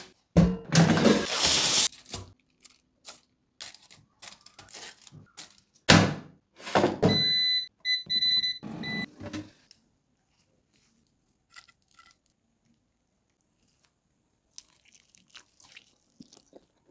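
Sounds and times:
air fryer control panel beeping: 7.1s - 9.1s.

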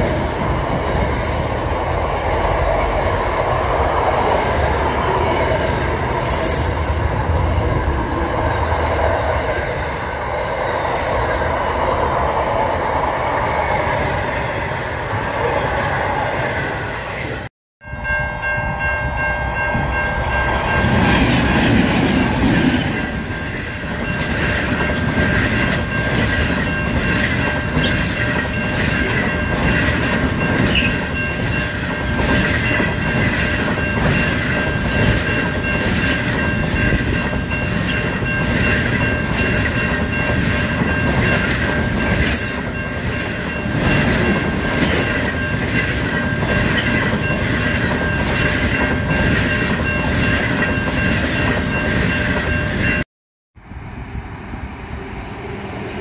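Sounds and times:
freight train rolling past: 0.0s - 53.0s, 53.6s - 56.0s
passenger train rumbling by: 0.0s - 53.0s, 53.6s - 56.0s
high ringing tones: 17.8s - 21.1s.

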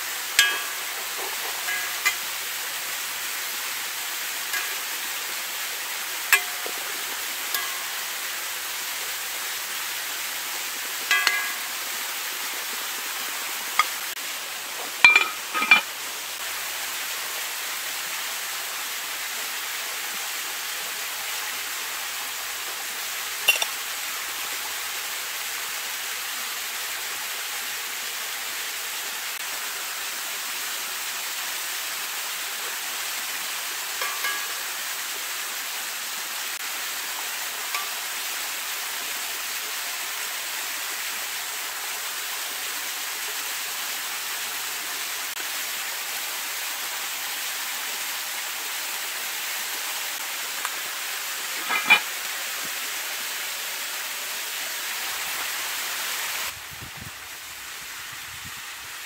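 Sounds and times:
frying hiss: 0.0s - 59.0s
metal skimmer clinking on pan: 0.4s - 2.3s, 4.5s - 4.9s, 6.3s - 6.8s, 7.5s - 8.0s, 11.1s - 11.8s, 15.0s - 15.9s, 23.5s - 23.7s, 34.0s - 34.7s, 37.7s - 38.0s, 51.6s - 52.1s.

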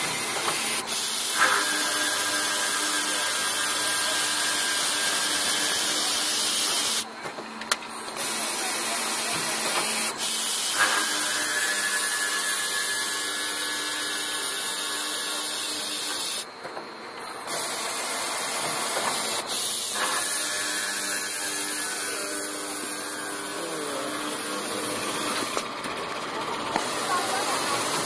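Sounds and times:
circular saw machine whining: 8.2s - 16.5s, 17.5s - 28.0s.

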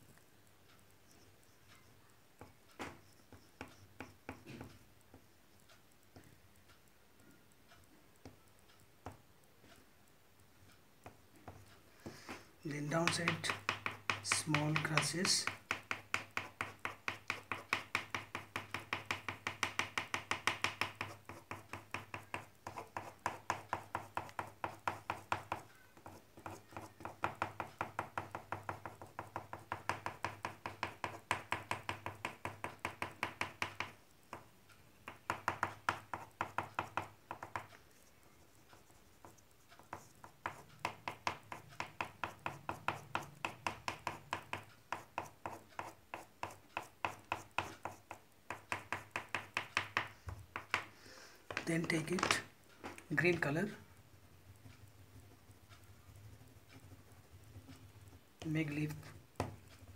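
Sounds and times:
oil pastel tapping on paper: 2.4s - 5.3s, 11.0s - 38.2s, 38.8s - 53.4s, 54.5s - 59.9s.

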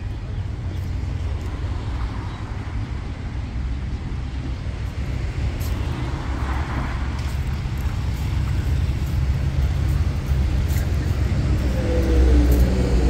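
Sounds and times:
road traffic rumble: 0.0s - 13.0s
vehicle passing: 4.9s - 13.0s.

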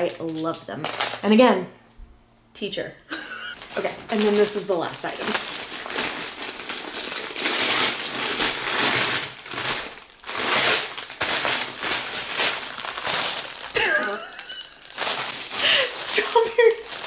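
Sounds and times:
packaging crinkling and tearing: 0.0s - 1.3s, 3.5s - 17.0s.

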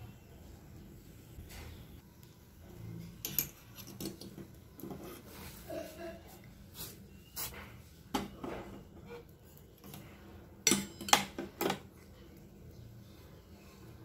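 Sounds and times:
metal kitchenware clinking on pot: 3.2s - 4.3s, 9.8s - 11.8s.

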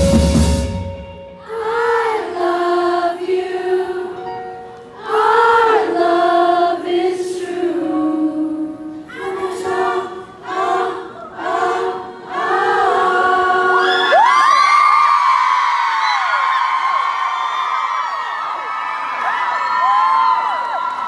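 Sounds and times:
people singing a cappella: 1.4s - 4.4s, 5.0s - 14.2s.

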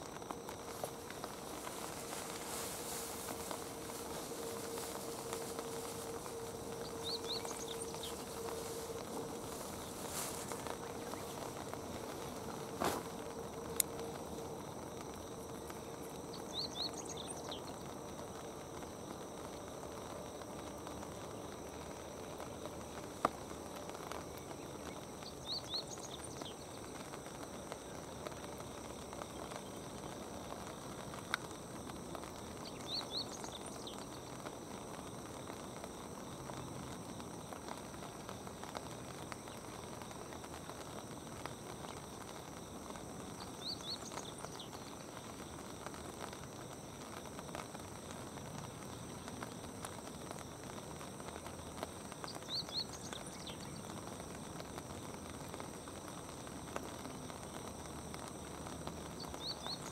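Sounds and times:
steady soft hiss: 0.0s - 59.9s
small bird chirping: 0.7s - 13.2s, 16.3s - 17.7s, 43.4s - 45.0s, 59.2s - 59.9s.

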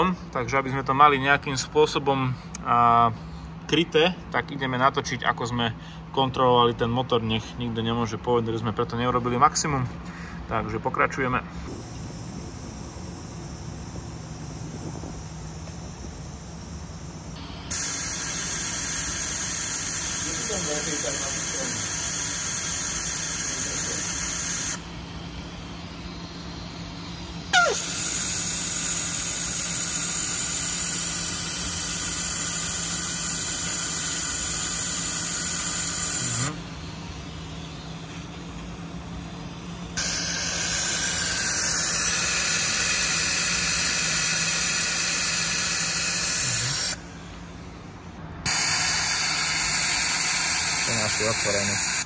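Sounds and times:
steady low hum: 0.0s - 52.0s
compressed air hissing: 11.7s - 47.8s, 48.4s - 52.0s
short sharp squeak: 27.5s - 28.1s.

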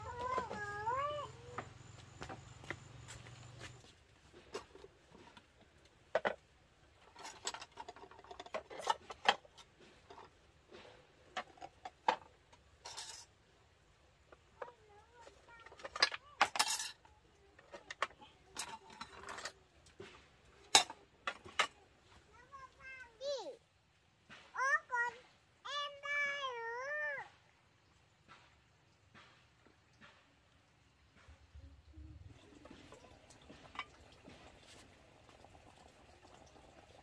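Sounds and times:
clinks of dishes and utensils: 7.0s - 13.3s, 15.6s - 21.8s, 32.5s - 34.5s.

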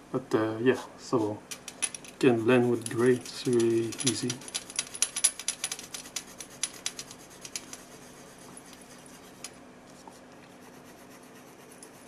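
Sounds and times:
colored pencil scratching on paper: 6.3s - 9.4s, 10.4s - 12.0s.

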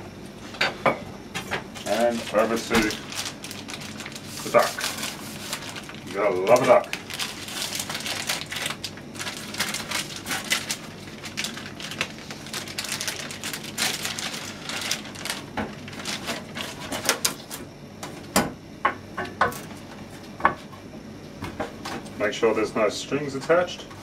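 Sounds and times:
plastic wrapping crinkling: 1.8s - 17.5s.

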